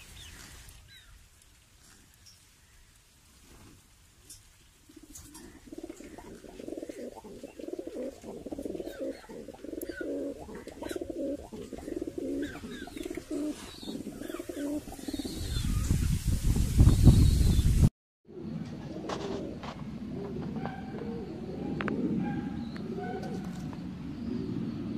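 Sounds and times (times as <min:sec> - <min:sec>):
pigeons cooing: 0:04.9 - 0:15.9, 0:18.3 - 0:24.9.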